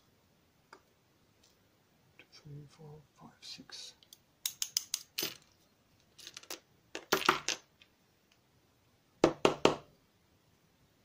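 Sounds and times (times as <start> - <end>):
sharp metallic clicks and taps: 4.0 - 5.1.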